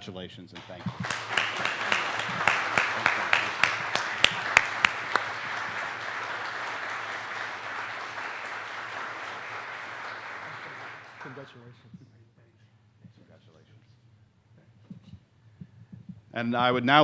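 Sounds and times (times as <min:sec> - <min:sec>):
person clapping loudly close by: 0:00.6 - 0:11.5
audience applauding: 0:00.6 - 0:11.7.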